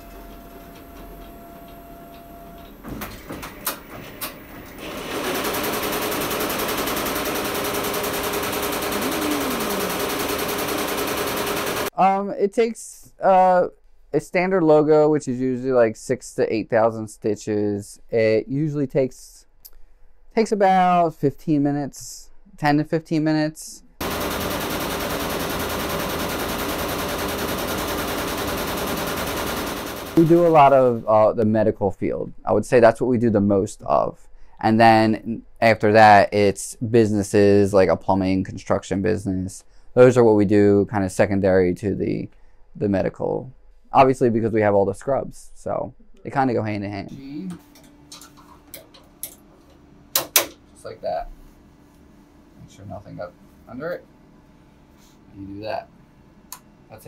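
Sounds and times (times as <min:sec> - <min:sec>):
embroidery machine stitching clatter: 0:03.2 - 0:11.9, 0:24.0 - 0:30.2
machine clicks and knocks: 0:47.7 - 0:50.6.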